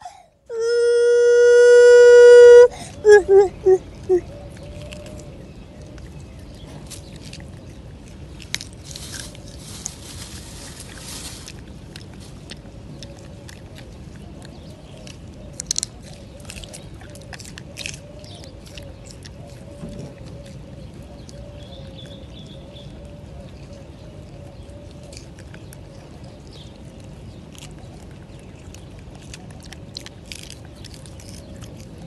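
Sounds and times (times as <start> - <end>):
soft rustle: 3.9 - 14.1.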